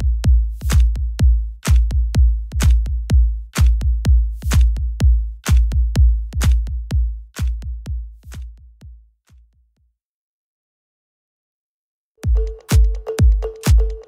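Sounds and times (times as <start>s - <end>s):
hi-hat and snare strokes: 0.0s - 8.7s
drum-machine kick: 0.0s - 9.7s, 12.2s - 14.0s
electronic dance music: 12.2s - 14.0s.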